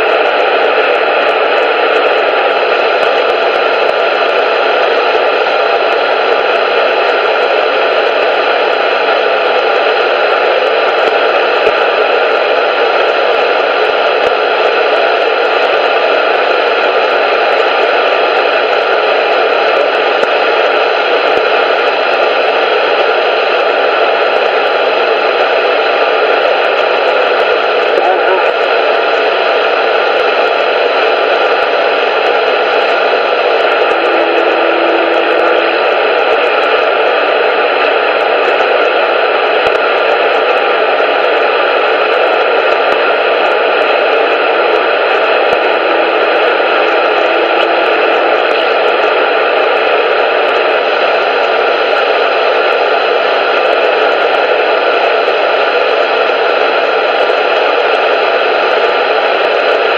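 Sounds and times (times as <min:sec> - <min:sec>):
loud static hiss: 0:00.0 - 0:59.9
low hum tone: 0:33.1 - 0:36.2, 0:44.0 - 0:49.5.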